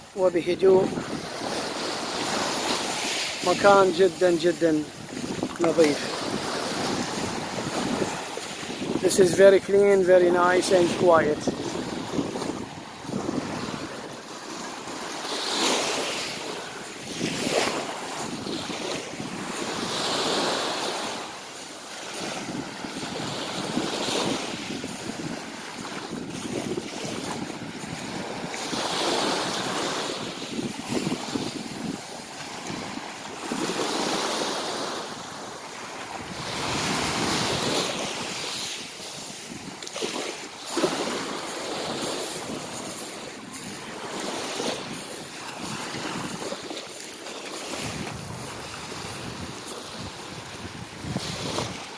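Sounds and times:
waves washing on pebble beach: 0:00.0 - 0:51.9
wind buffeting microphone: 0:00.6 - 0:09.8, 0:10.4 - 0:14.2, 0:16.8 - 0:20.4, 0:22.2 - 0:33.8, 0:40.7 - 0:47.0, 0:47.6 - 0:51.9.

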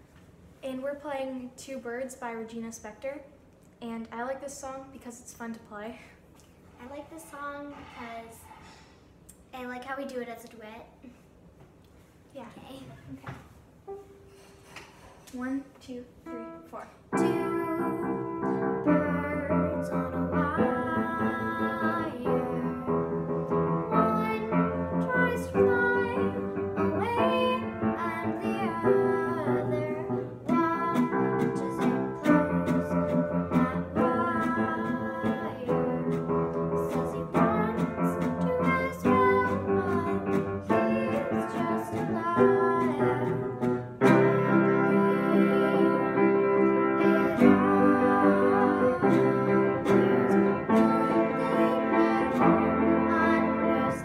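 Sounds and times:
upright piano: 0:16.2 - 0:54.0
classical guitar: 0:16.3 - 0:54.0
girl singing: 0:16.3 - 0:54.0.

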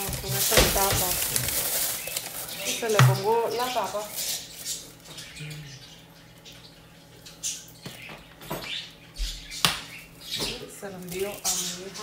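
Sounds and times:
plastic crinkling: 0:00.0 - 0:05.2, 0:10.7 - 0:12.0.

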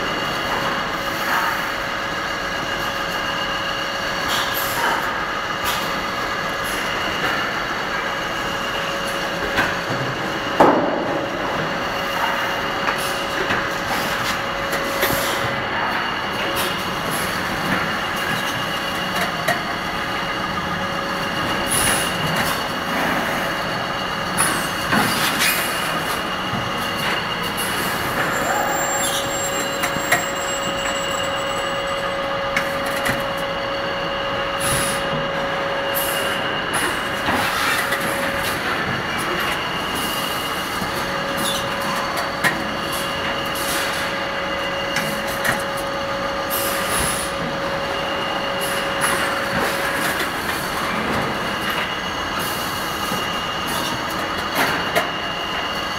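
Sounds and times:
machine whine: 0:00.0 - 0:55.9.

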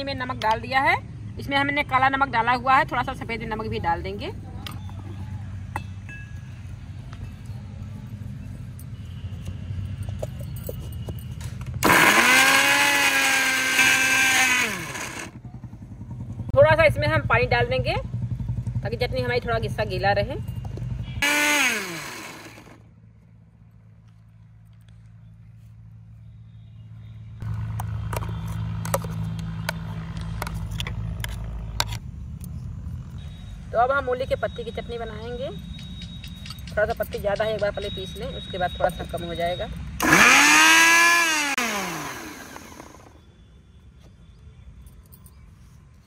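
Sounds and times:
mixer grinder running: 0:11.8 - 0:15.4, 0:21.2 - 0:22.8, 0:40.0 - 0:43.1.

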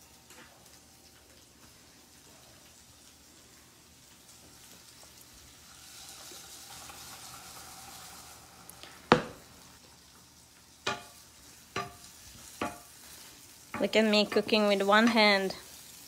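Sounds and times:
vegetables sizzling in oil: 0:00.0 - 0:16.0
utensil knocking against pan: 0:10.8 - 0:11.2, 0:11.8 - 0:12.9.

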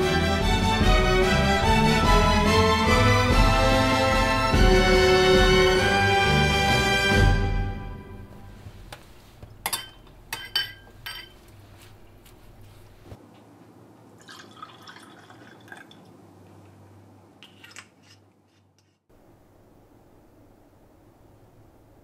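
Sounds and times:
glass clinks: 0:09.6 - 0:11.4
liquid pouring into glass: 0:14.2 - 0:16.1.

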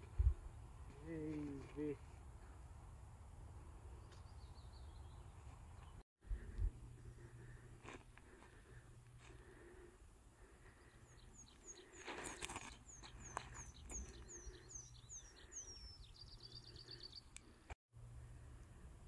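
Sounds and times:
songbird singing: 0:03.7 - 0:07.6, 0:10.4 - 0:17.8
disc throw scuffing: 0:11.9 - 0:14.1.

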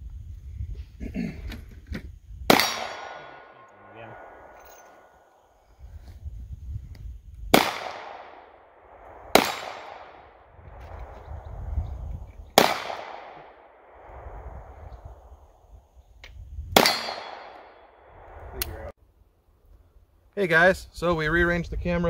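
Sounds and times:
revolver shots with echo: 0:02.5 - 0:05.3, 0:07.6 - 0:08.6, 0:09.2 - 0:10.4, 0:12.6 - 0:14.0, 0:16.8 - 0:17.8.

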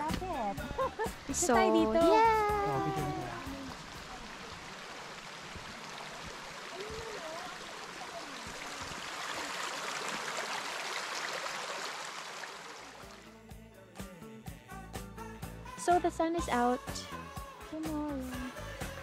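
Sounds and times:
rocky creek flowing: 0:00.0 - 0:13.3.

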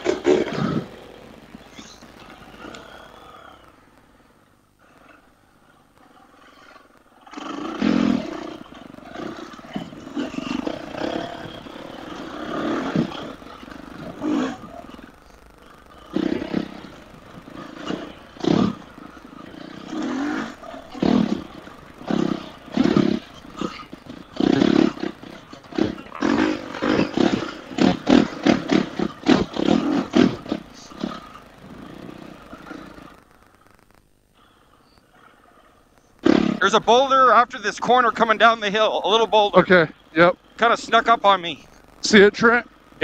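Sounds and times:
dirt bike engine revving: 0:07.2 - 0:15.1, 0:15.9 - 0:33.1.

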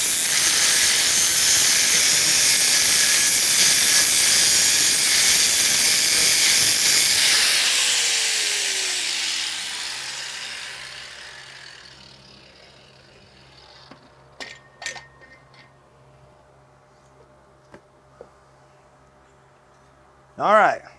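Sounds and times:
angle grinder grinding steel: 0:00.0 - 0:15.4.

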